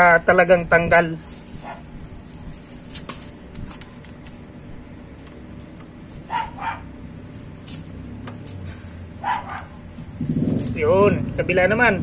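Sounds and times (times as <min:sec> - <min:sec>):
dog barking: 0:01.6 - 0:01.9, 0:06.3 - 0:06.9, 0:09.2 - 0:09.8.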